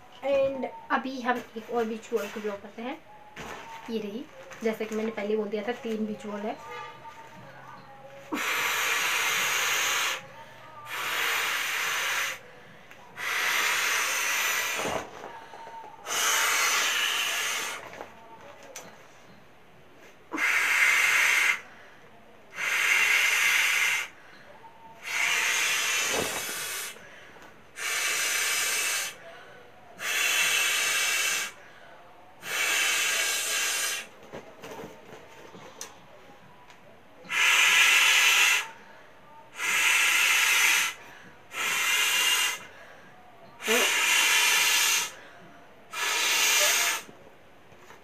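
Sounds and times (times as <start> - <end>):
breath blown into beach ball valve: 27.8 - 29.2, 30.0 - 31.6, 37.3 - 38.7, 39.6 - 42.7, 43.6 - 45.2, 45.9 - 47.1.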